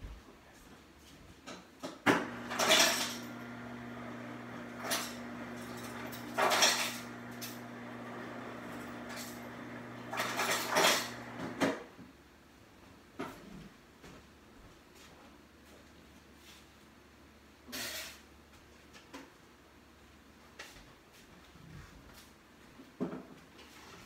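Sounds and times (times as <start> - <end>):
ice dispenser motor hum: 2.1 - 11.8
ice cubes clattering into cup: 2.5 - 3.3, 4.8 - 7.6.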